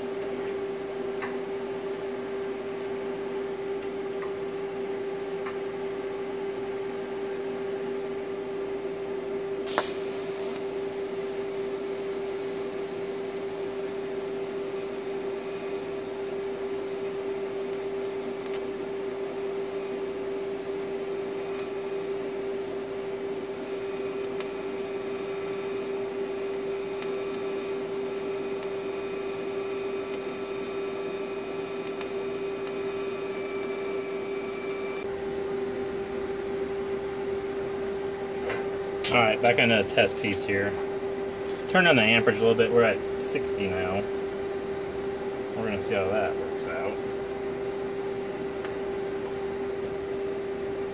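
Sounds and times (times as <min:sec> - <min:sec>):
steady hum: 0:00.0 - 0:50.9
welding arc hiss: 0:09.6 - 0:35.1, 0:39.5 - 0:40.7
welding arc striking crack: 0:09.7 - 0:10.8, 0:16.7 - 0:22.2, 0:23.5 - 0:34.1.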